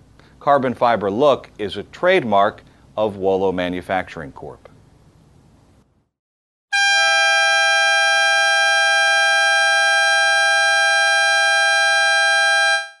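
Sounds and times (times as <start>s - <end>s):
dual-tone air horn blast: 6.7s - 13.0s.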